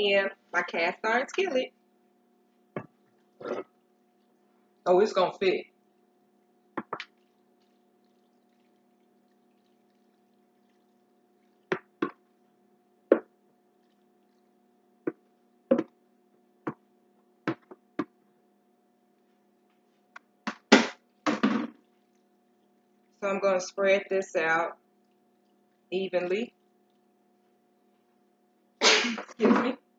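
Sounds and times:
faint steady hum: 0.0s - 29.9s
knocks and taps on a bowl: 6.8s - 7.1s.

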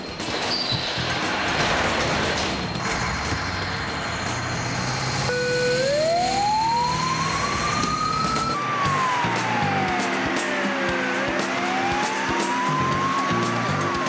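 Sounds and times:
diesel engines: 0.0s - 14.0s
fire engine siren wailing: 2.8s - 14.0s.

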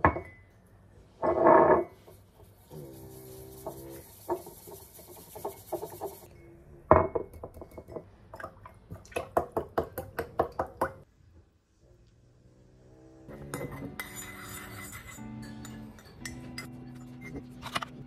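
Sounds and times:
whisk scraping ceramic mug: 1.3s - 6.3s, 13.3s - 17.7s.

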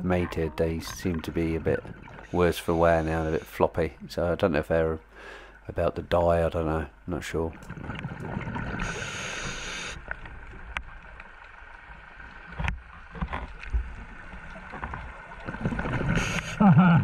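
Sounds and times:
underwater bubbling rumble: 0.0s - 2.4s, 7.5s - 16.5s.

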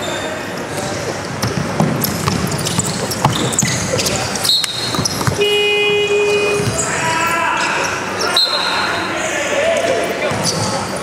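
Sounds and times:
sneaker squeaks: 0.0s - 11.0s
basketball bouncing on hardwood: 1.4s - 3.6s, 4.8s - 5.5s.

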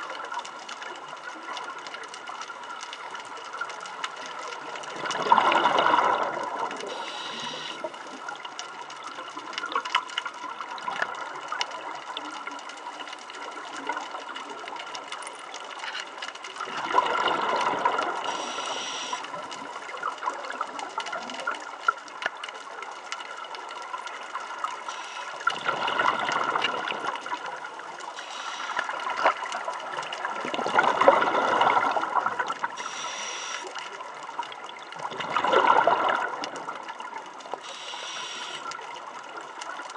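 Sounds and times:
faint steady hum: 0.0s - 9.7s, 10.4s - 20.6s, 23.8s - 30.3s, 31.0s - 34.4s, 37.5s - 39.8s
exhaled bubbles underwater: 0.0s - 39.9s
regulator inhale hiss: 6.8s - 8.0s, 18.3s - 19.3s, 24.9s - 25.5s, 28.2s - 29.0s, 32.8s - 33.8s, 37.6s - 38.7s.

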